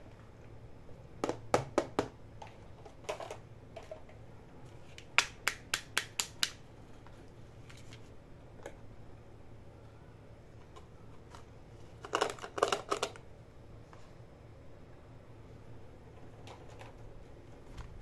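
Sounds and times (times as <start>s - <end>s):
plastic toys clicking: 12.0s - 13.2s.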